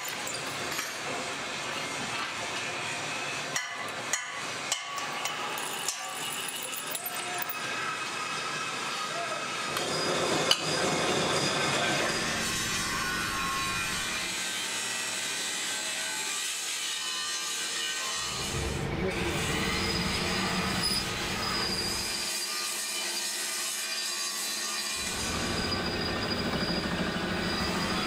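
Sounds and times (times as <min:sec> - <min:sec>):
lathe tool cutting steel: 0:02.8 - 0:28.0
machine hum: 0:25.0 - 0:28.0.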